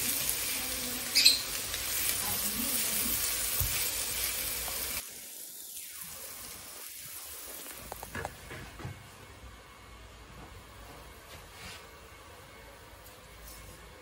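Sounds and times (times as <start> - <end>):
food sizzling in a frying pan: 0.0 - 8.4.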